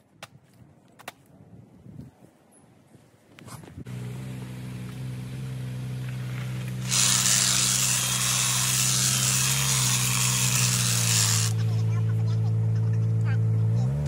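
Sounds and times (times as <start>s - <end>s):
hedge trimmer engine running: 6.0s - 11.8s
trimmer blades clattering: 6.8s - 11.6s.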